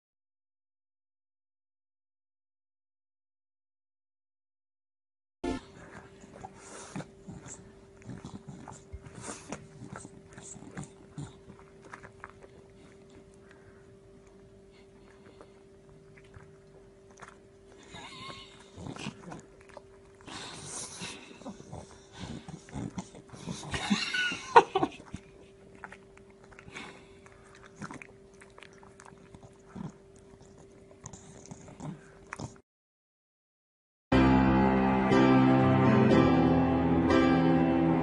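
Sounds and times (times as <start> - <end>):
faint steady hum: 5.4 - 32.6
dog chewing food: 5.7 - 32.6.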